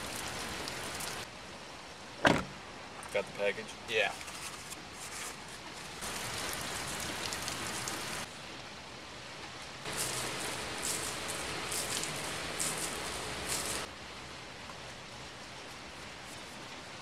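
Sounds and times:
heavy rain on car roof: 0.0 - 1.3, 6.0 - 8.3, 9.9 - 13.9.

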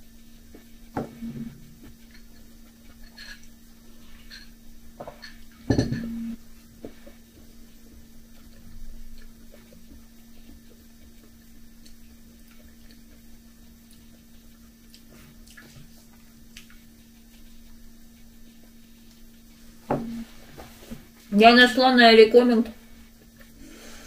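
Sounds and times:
mug set down on table: 5.7 - 6.1.

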